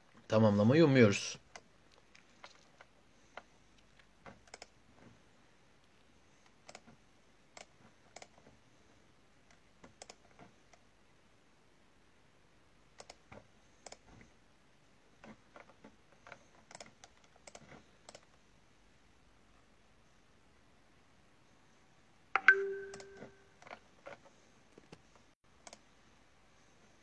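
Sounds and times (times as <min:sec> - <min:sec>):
faint irregular clicks: 0:01.4 - 0:05.2, 0:05.8 - 0:08.6, 0:09.4 - 0:10.9, 0:13.0 - 0:14.3, 0:15.2 - 0:18.4, 0:22.4 - 0:25.9.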